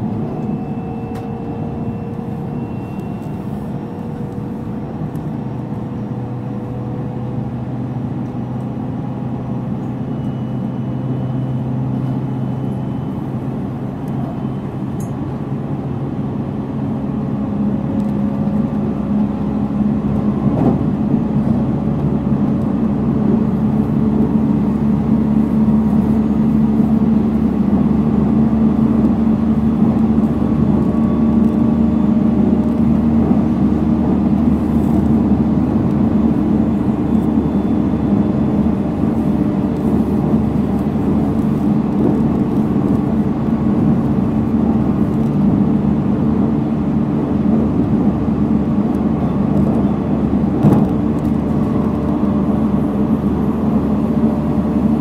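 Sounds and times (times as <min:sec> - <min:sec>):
train wheels and motors rumbling: 0:00.0 - 0:55.0.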